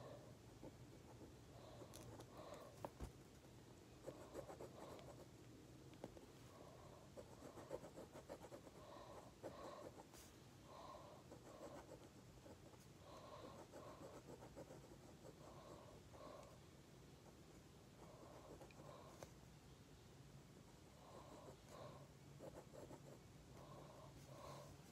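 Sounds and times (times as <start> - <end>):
pencil scratching on paper: 4.0 - 5.3, 7.0 - 10.3, 11.2 - 16.0, 18.0 - 19.3, 22.4 - 23.2.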